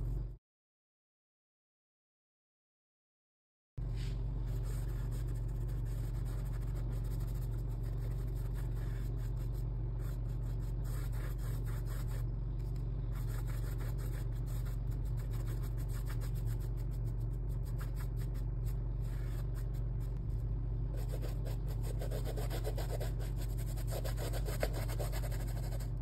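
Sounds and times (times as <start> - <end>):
low hum: 0.0 - 0.4, 3.8 - 26.0
paintbrush scratching on canvas: 4.4 - 12.3, 13.1 - 20.3, 20.9 - 26.0.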